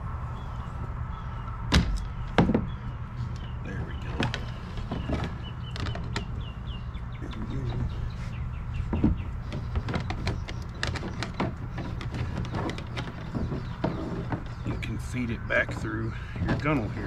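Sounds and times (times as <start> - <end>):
bird chirps: 0.3 - 17.0
wire scraping plastic hull: 3.7 - 6.5, 7.2 - 17.0.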